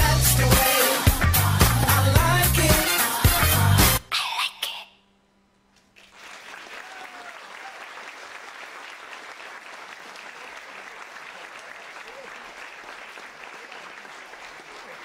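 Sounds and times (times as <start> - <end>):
dance music: 0.0 - 4.0
audience applauding: 6.0 - 15.0.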